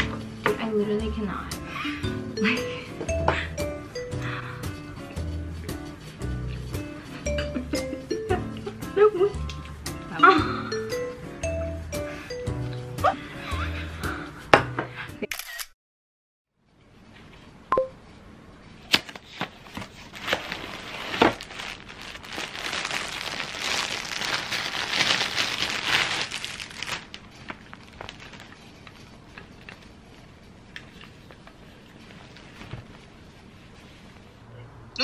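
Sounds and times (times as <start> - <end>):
plastic packaging crinkling: 18.9 - 29.9.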